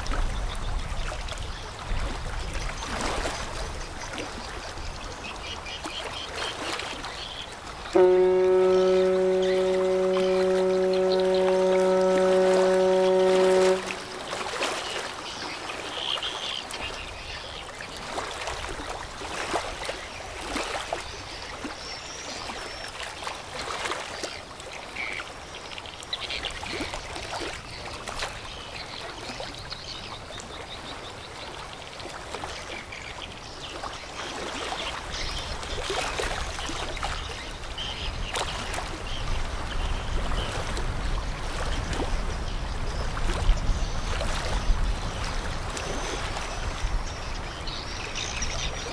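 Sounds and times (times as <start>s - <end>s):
river water lapping and splashing: 0.0s - 48.9s
low ship rumble: 7.9s - 15.3s.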